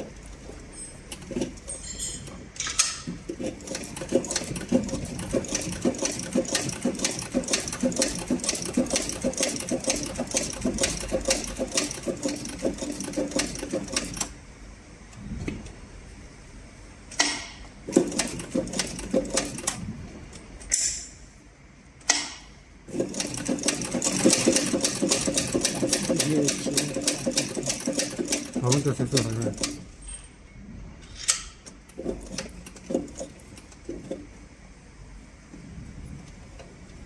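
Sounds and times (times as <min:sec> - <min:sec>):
leather sewing machine clacking: 0:03.3 - 0:14.3, 0:17.9 - 0:19.8, 0:22.9 - 0:29.8, 0:31.9 - 0:34.3.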